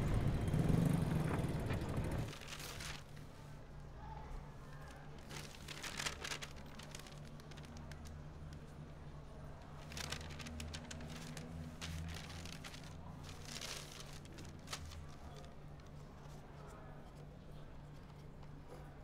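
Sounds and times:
newspaper pages rustling: 2.3 - 3.6, 4.8 - 16.7.

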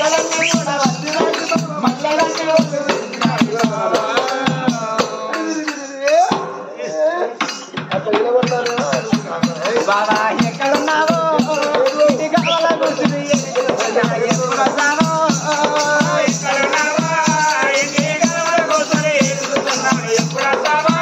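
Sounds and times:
barrel drum beat: 0.0 - 6.6, 7.4 - 21.0
person singing: 8.0 - 21.0
jingling rattle: 8.4 - 21.0.

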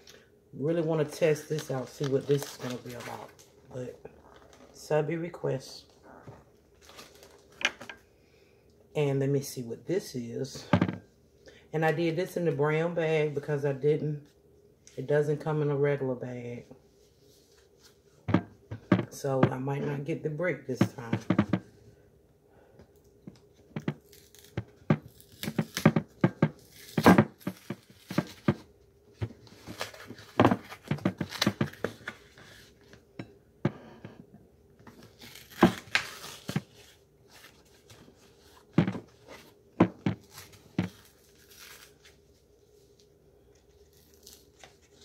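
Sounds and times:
paper and cardboard tearing: 24.0 - 28.5, 35.0 - 37.5.

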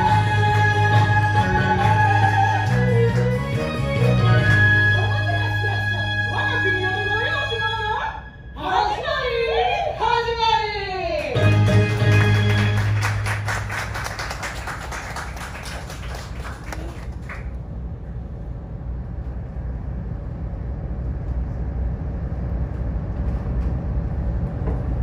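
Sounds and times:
boat engine low rumble: 15.4 - 25.0.

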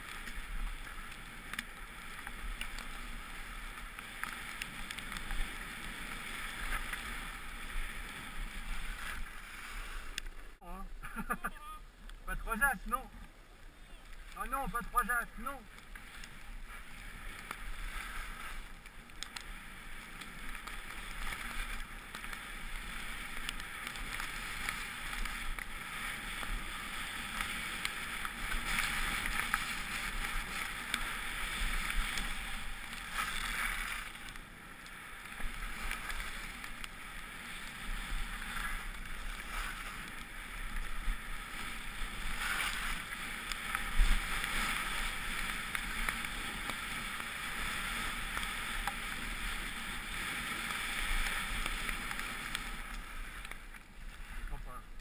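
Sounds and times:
skis carving on snow: 0.0 - 55.0.

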